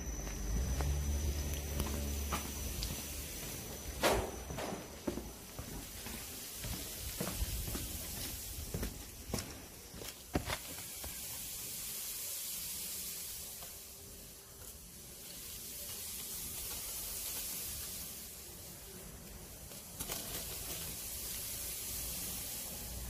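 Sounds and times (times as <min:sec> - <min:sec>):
footsteps on concrete: 0:00.1 - 0:11.3
wet mortar pouring from hose: 0:10.6 - 0:23.0.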